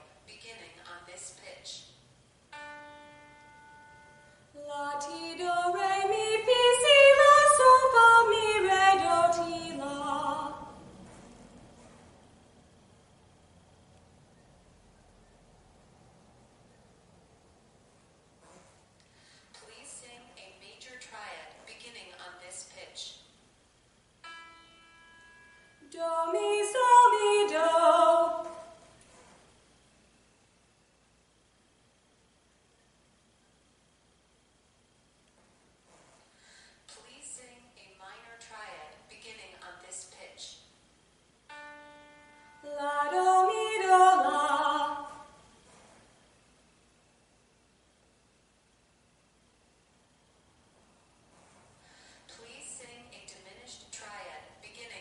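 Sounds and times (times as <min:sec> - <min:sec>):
woman singing unaccompanied: 0:04.6 - 0:10.8, 0:25.8 - 0:28.8, 0:42.5 - 0:45.4.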